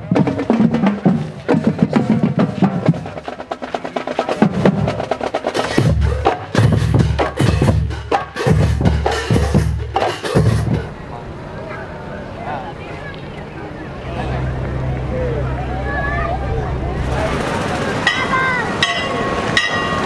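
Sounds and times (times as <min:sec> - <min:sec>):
snare drum rolls: 0:00.0 - 0:10.9
bass drum notes: 0:04.2 - 0:10.9.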